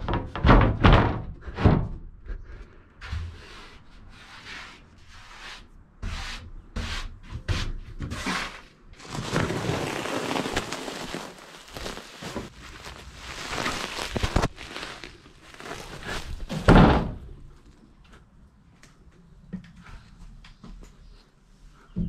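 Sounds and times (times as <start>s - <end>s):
plastic sheeting rustling: 9.0s - 17.8s.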